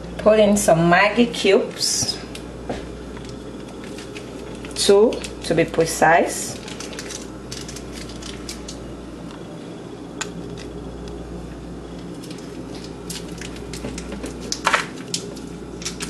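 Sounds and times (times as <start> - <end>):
small crinkles and clicks: 3.1 - 5.4, 6.6 - 8.8, 12.1 - 16.0
foil crinkling: 3.1 - 5.5, 6.5 - 8.9, 12.0 - 16.0.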